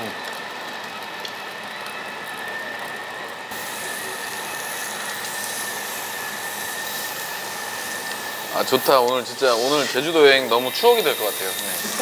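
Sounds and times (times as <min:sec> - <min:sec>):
thin steady high tone: 0:01.5 - 0:12.0
meat sizzling on grill: 0:03.5 - 0:12.0.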